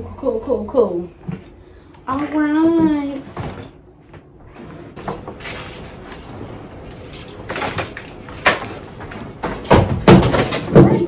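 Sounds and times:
objects knocking: 0:07.5 - 0:11.0.

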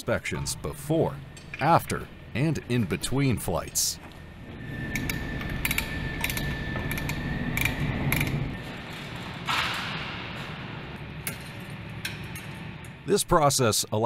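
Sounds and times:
steady low rumble: 0:00.0 - 0:13.4
wrench clinking against metal: 0:04.9 - 0:08.4.

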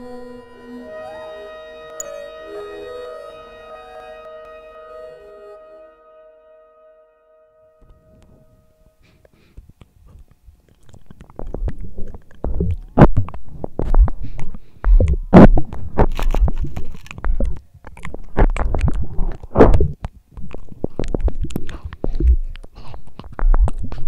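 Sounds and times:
crunching clicks: 0:09.8 - 0:24.0
wet mouth noises: 0:10.6 - 0:24.0.

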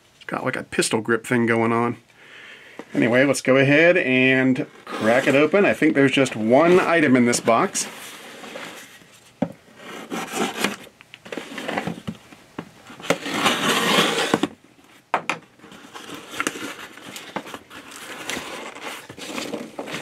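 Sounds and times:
knife scraping cardboard: 0:04.7 - 0:05.6, 0:09.7 - 0:12.0, 0:13.0 - 0:14.6
packing tape ripping: 0:13.1 - 0:14.6.

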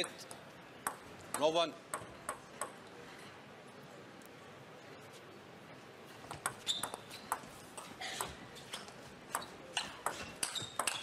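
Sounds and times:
table tennis ball clicking: 0:00.0 - 0:02.8, 0:08.8 - 0:11.0.

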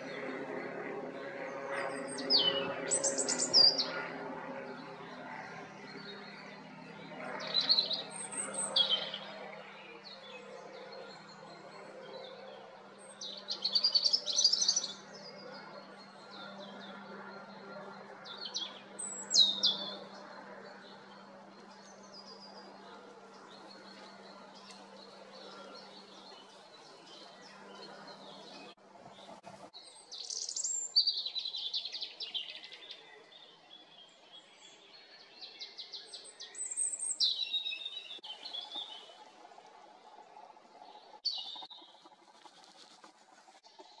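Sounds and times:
robin singing: 0:02.1 - 0:03.9, 0:13.0 - 0:15.4, 0:17.6 - 0:20.2.

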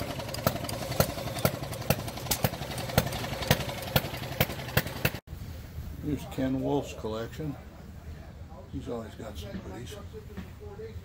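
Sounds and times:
small gas engines popping: 0:00.0 - 0:05.2.

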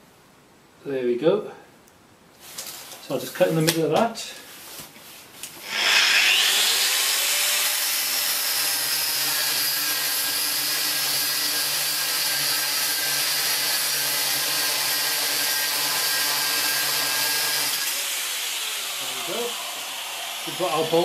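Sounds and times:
angle grinder cutting metal rod: 0:05.6 - 0:21.0.

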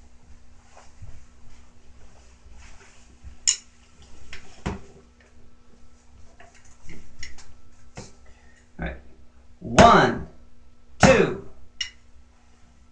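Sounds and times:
drumsticks clicking and knocking: 0:11.8 - 0:12.0.

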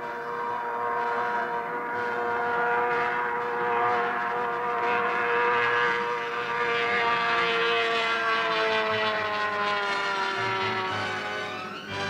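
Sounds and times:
outboard engine at high revs: 0:00.4 - 0:11.5.

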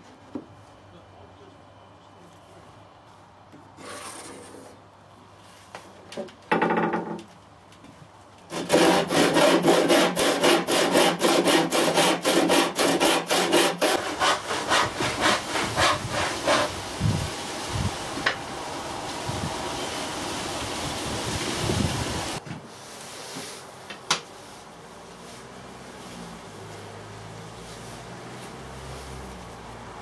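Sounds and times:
hand saw cutting wood: 0:03.8 - 0:04.7, 0:08.5 - 0:16.8
quiet saw scrapes: 0:03.8 - 0:04.8.

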